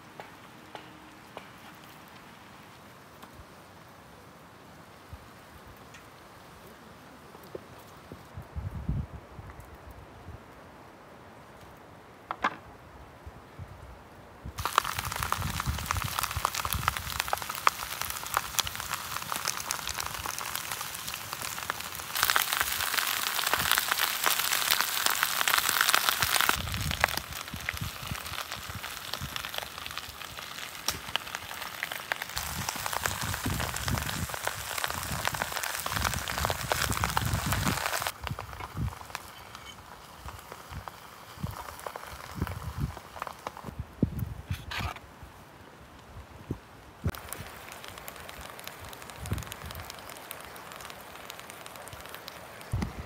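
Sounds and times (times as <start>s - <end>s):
faint outdoor hiss: 0.0s - 53.0s
meat sizzling in a pan: 14.6s - 43.7s, 47.1s - 52.7s.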